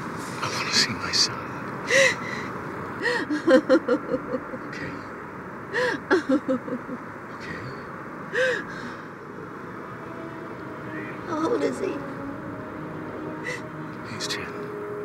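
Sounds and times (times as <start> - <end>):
woman sobbing: 1.9 - 4.7, 5.7 - 7.0, 8.3 - 9.0, 13.4 - 13.8.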